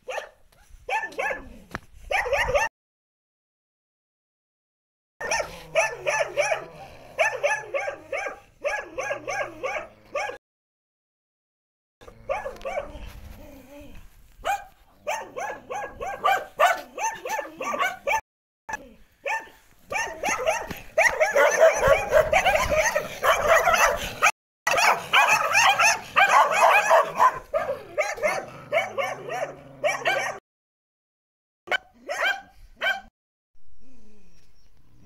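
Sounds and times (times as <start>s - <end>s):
dogs barking: 0.0s - 1.5s, 2.1s - 2.7s, 5.2s - 10.4s, 12.0s - 13.1s, 14.4s - 18.2s, 19.2s - 30.4s, 31.7s - 33.1s.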